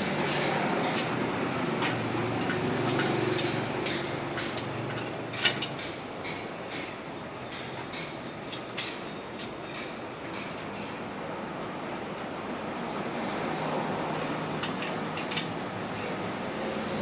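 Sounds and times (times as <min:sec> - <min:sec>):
metal clicks and clanks: 0:01.8 - 0:11.0, 0:14.6 - 0:16.4.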